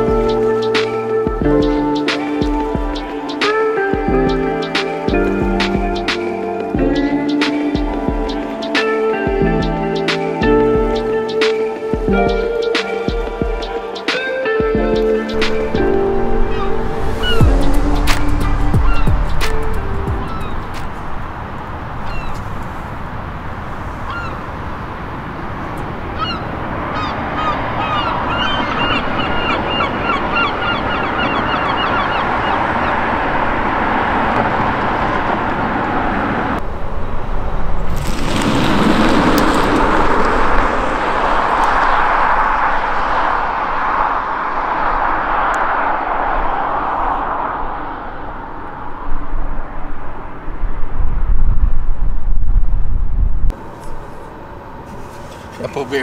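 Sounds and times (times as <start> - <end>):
birds calling: 0.0 - 22.8, 23.9 - 24.6, 25.6 - 34.2
car driving past: 15.3 - 23.0, 23.6 - 50.6.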